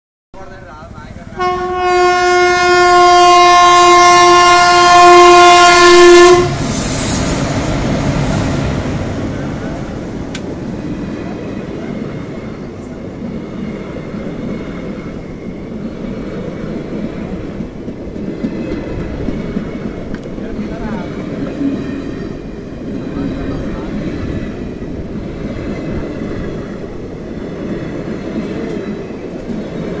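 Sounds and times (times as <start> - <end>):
train passing with wheel clatter: 0.4 - 30.0
locomotive horn blast: 1.4 - 6.8.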